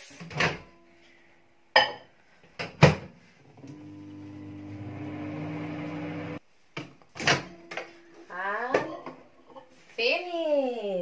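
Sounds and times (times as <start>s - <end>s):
microwave humming: 3.5s - 6.4s.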